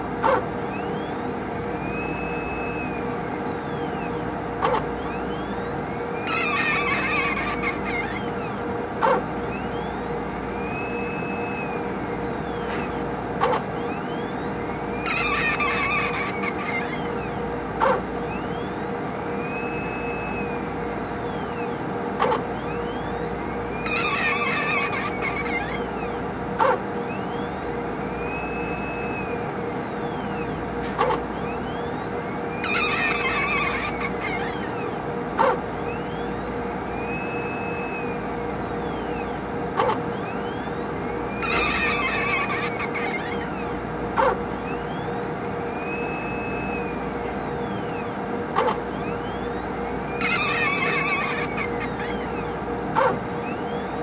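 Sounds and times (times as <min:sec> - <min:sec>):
faint whine: 0:00.0 - 0:54.0
pump squeaking: 0:06.2 - 0:08.4, 0:15.0 - 0:17.2, 0:23.8 - 0:26.0, 0:30.8 - 0:31.3, 0:32.5 - 0:35.6, 0:41.0 - 0:44.4, 0:48.6 - 0:48.8, 0:49.5 - 0:53.2.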